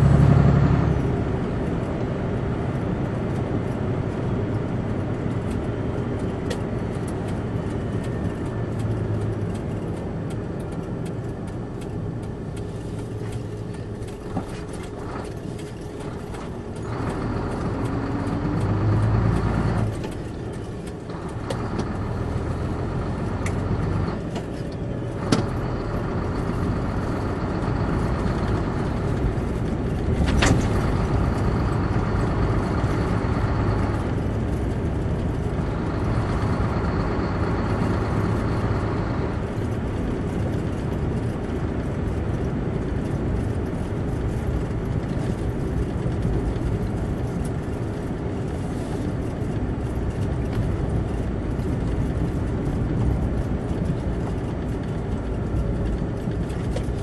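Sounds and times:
tyre rumble on dirt road: 0:00.0 - 0:57.0
vehicle engine hum: 0:00.0 - 0:57.0.

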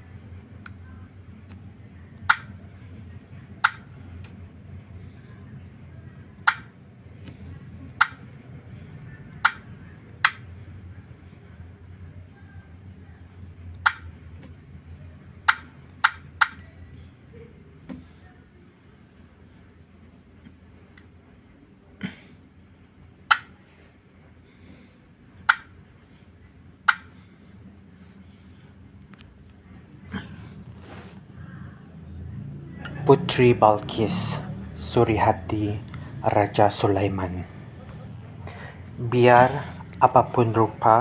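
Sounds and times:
low steady hum: 0:00.0 - 0:41.0
touchscreen key press clicks: 0:02.2 - 0:02.5, 0:06.4 - 0:06.7
taps on touchscreen keyboard: 0:06.4 - 0:06.7.

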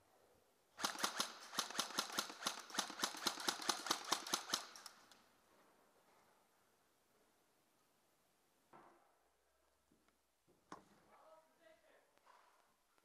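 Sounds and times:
airsoft gun rapid shots: 0:00.8 - 0:05.0.

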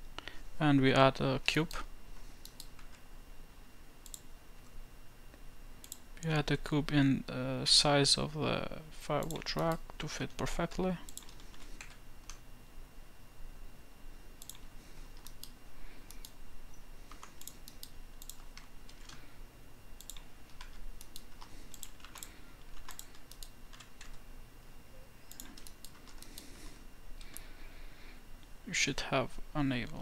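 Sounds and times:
faint low hum: 0:00.0 - 0:30.0
computer keyboard keystrokes: 0:11.0 - 0:12.4, 0:14.4 - 0:16.4, 0:17.1 - 0:19.2, 0:20.0 - 0:24.2, 0:25.3 - 0:26.5.

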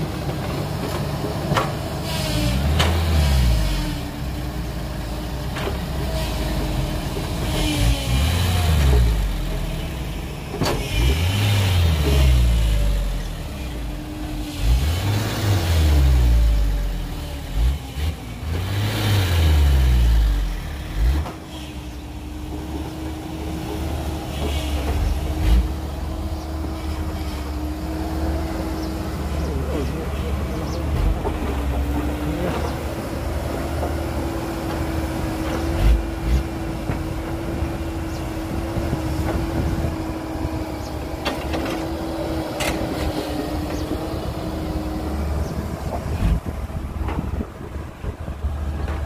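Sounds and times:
diesel engine revving and idling: 0:00.0 - 0:49.0.

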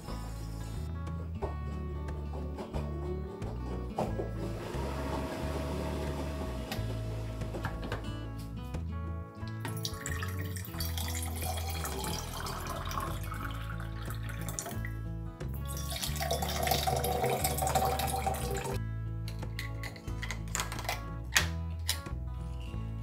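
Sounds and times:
background music with low notes: 0:00.0 - 0:23.0
liquid pouring into tumbler: 0:09.7 - 0:14.8, 0:15.7 - 0:18.8.

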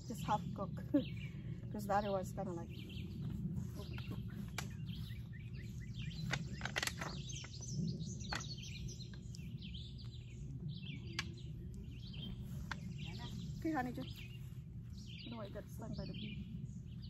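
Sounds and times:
low outdoor rumble: 0:00.0 - 0:17.0
small birds chirping: 0:00.0 - 0:17.0
vines rustling and clicking: 0:03.2 - 0:09.4.

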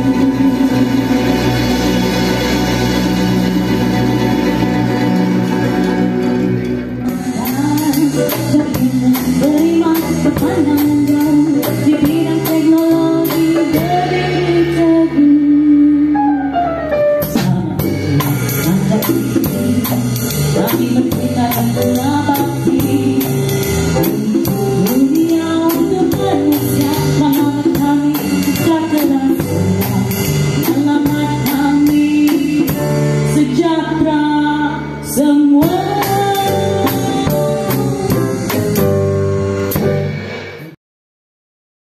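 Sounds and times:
live band playing: 0:00.0 - 0:40.8
person singing: 0:07.0 - 0:39.0.

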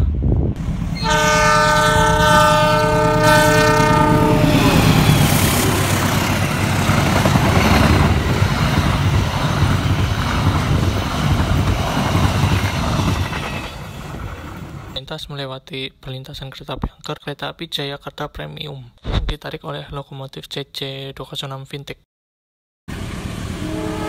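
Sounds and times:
train rumbling on rails: 0:00.0 - 0:15.0, 0:22.9 - 0:24.0
locomotive horn blast: 0:01.0 - 0:05.5, 0:23.6 - 0:24.0.

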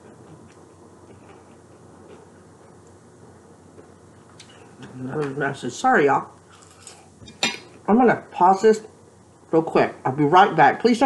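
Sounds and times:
room hum: 0:00.0 - 0:11.0.

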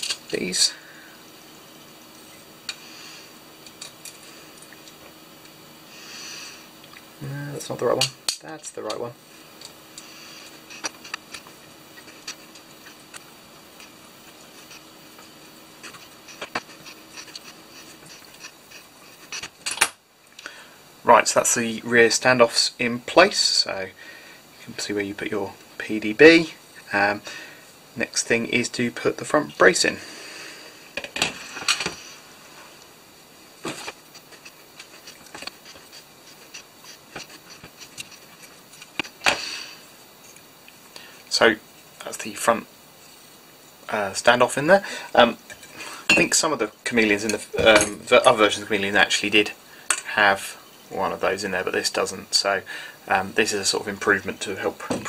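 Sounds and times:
small parts clicking and tapping: 0:00.0 - 0:00.4, 0:08.0 - 0:09.0
faint hiss: 0:00.0 - 0:55.0.

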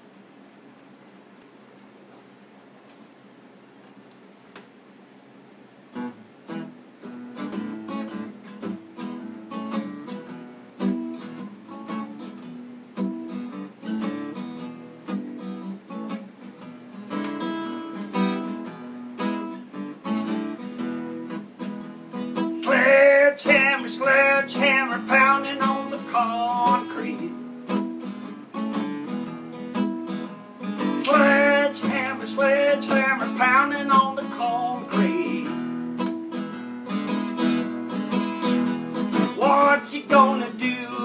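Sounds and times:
acoustic guitar blues strumming: 0:05.9 - 0:41.0
person singing: 0:22.6 - 0:27.4, 0:30.8 - 0:35.7, 0:39.1 - 0:41.0.

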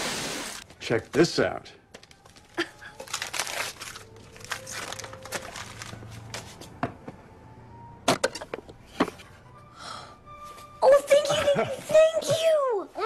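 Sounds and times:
wrapping paper tearing and crumpling: 0:02.0 - 0:06.5.

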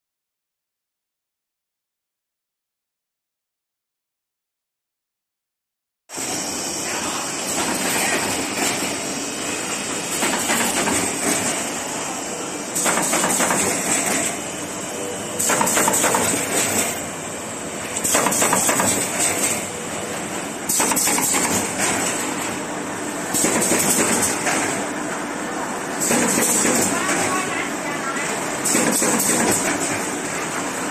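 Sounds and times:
machine mechanical clatter: 0:10.1 - 0:11.7, 0:12.8 - 0:14.4, 0:15.4 - 0:17.1, 0:17.9 - 0:19.7, 0:20.7 - 0:22.6, 0:23.3 - 0:24.9, 0:26.0 - 0:27.5, 0:28.6 - 0:30.7.

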